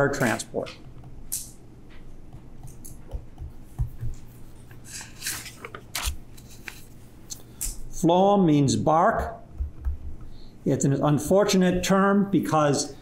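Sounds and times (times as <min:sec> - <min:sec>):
low electrical hum: 0:00.0 - 0:13.0
stylus tapping and scratching: 0:00.2 - 0:06.9, 0:09.5 - 0:10.4.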